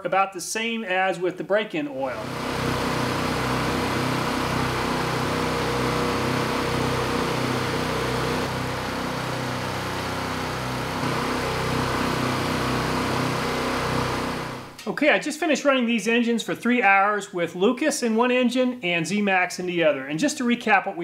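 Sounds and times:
small engines droning: 2.2 - 14.8.

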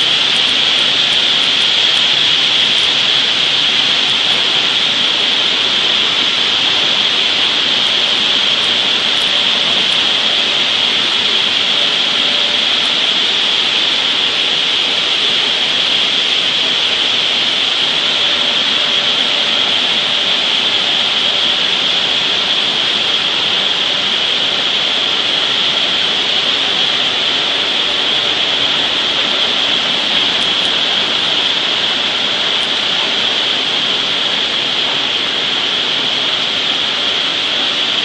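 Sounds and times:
flour mill machinery din: 0.0 - 38.0.

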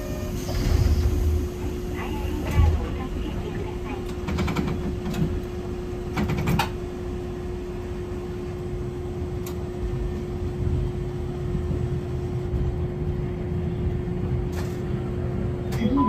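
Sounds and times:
streetcar rumbling and humming: 0.0 - 16.0.

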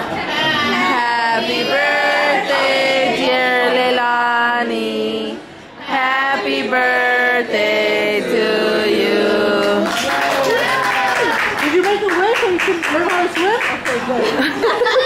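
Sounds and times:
group singing together: 0.7 - 10.1.

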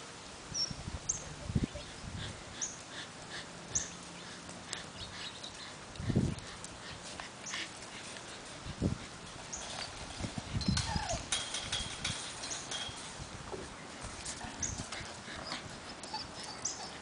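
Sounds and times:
puppies squeaking and whimpering: 9.4 - 12.8, 14.6 - 17.0.

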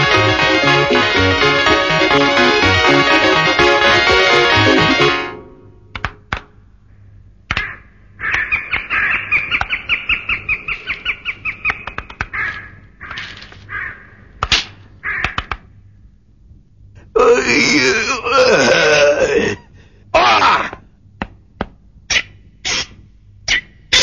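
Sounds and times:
sharp clicks: 5.9 - 6.6, 11.6 - 13.5, 14.4 - 15.7
harsh crow-like cackling call: 7.5 - 9.6, 12.3 - 14.3, 15.0 - 15.5.

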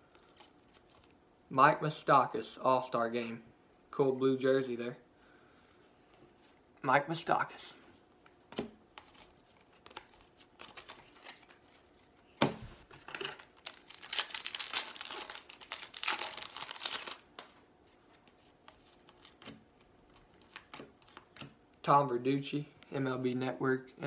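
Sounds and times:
foil wrapper tearing and crinkling: 13.2 - 17.6.

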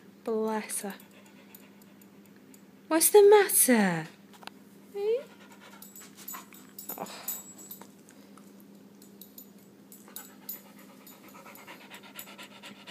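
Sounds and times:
small dog panting: 5.0 - 6.6, 10.1 - 12.9.

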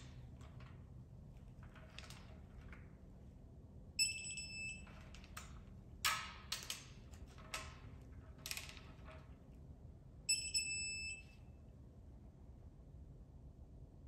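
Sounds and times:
short electronic beep: 4.0 - 4.8, 10.3 - 11.4.

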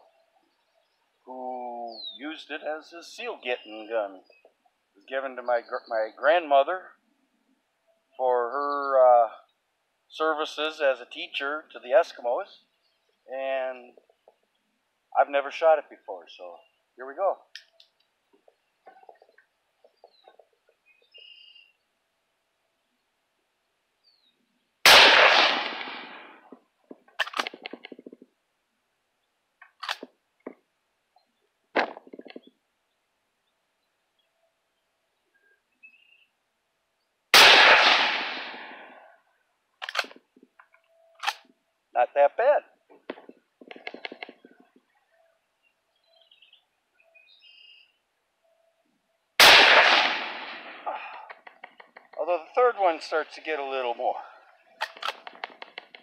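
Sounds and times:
faint bird chirps: 0.0 - 7.0, 7.8 - 9.7, 16.3 - 21.9, 24.0 - 24.7, 32.3 - 37.2, 43.9 - 49.4
faint clicks: 17.5 - 20.8, 42.9 - 45.1, 51.1 - 52.2, 54.8 - 56.0
rifle shot with echo: 24.8 - 26.5, 37.3 - 39.0, 49.4 - 51.1
rifle lever metallic clacks: 27.2 - 27.8, 29.7 - 30.1, 39.8 - 40.2, 41.2 - 41.4, 54.8 - 56.0.

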